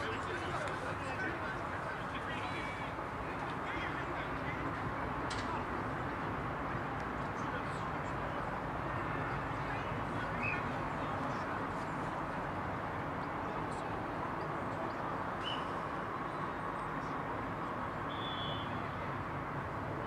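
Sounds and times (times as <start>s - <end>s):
outdoor background noise: 0.0s - 20.0s
high whistle-like tone: 18.1s - 18.8s.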